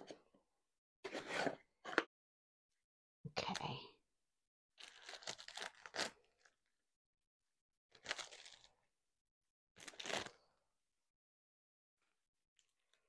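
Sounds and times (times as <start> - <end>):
plastic wrap crinkling and tearing: 4.8 - 6.5, 8.0 - 8.8, 9.8 - 10.4.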